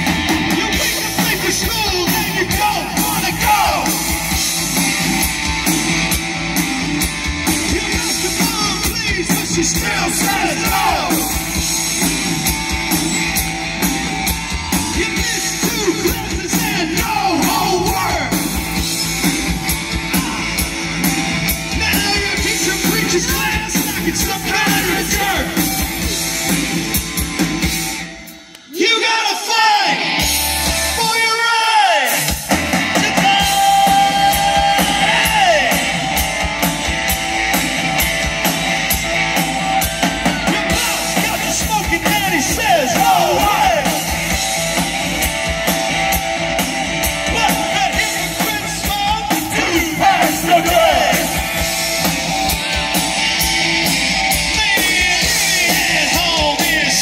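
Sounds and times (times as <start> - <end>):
drumbeat: 0.0 - 28.0, 32.2 - 57.0
electric guitar: 0.0 - 28.7, 32.1 - 57.0
rock band playing: 0.0 - 57.0
person singing: 0.5 - 4.1, 33.0 - 36.0, 40.4 - 44.2, 47.3 - 51.5, 54.5 - 57.0.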